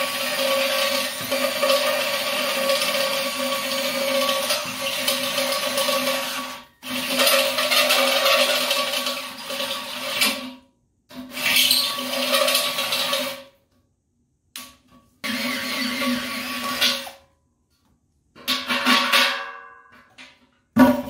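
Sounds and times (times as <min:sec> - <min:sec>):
electric drill cutting metal: 0:15.2 - 0:16.8.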